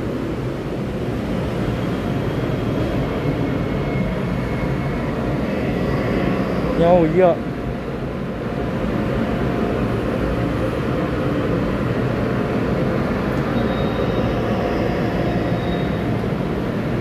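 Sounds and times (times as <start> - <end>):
electric train rumble and hum: 0.0 - 17.0
faint high whine: 1.8 - 10.0, 12.5 - 17.0.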